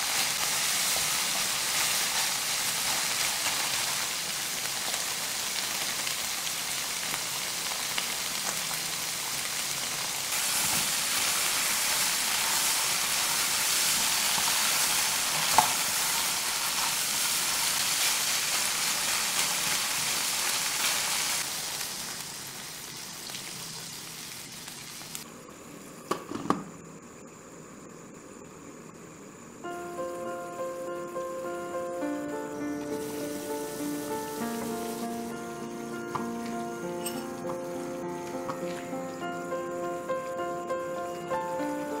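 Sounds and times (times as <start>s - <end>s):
meat and vegetables sizzling in pan: 0.0s - 25.2s, 31.0s - 42.0s.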